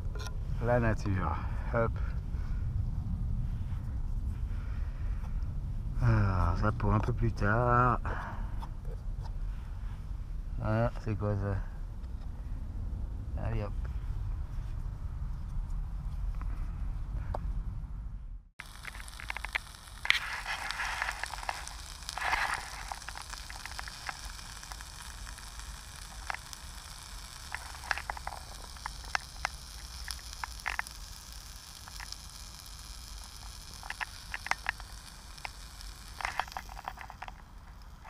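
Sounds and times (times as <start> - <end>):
hissing bursts: 18.6 - 38.0
potatoes sizzling in a pan: 18.6 - 38.0.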